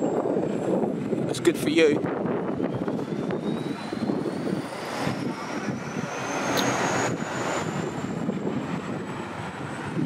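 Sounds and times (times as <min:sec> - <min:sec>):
city traffic rumble: 0:00.0 - 0:10.0
thin high whine rising in pitch: 0:02.4 - 0:10.0.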